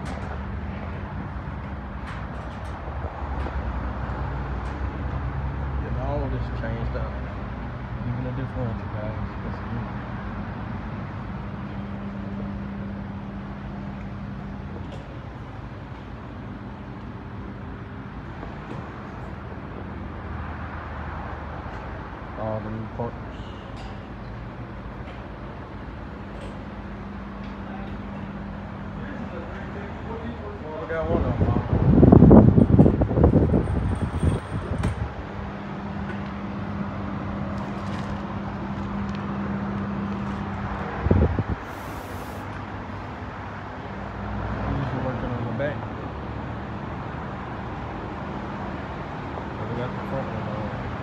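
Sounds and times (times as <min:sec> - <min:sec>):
short high hiss: 0:41.6 - 0:42.5.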